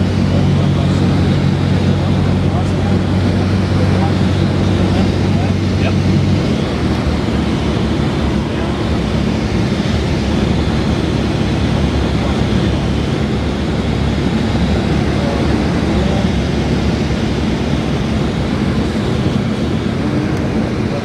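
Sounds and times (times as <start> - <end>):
small plane engine drone in cabin: 0.0 - 21.0.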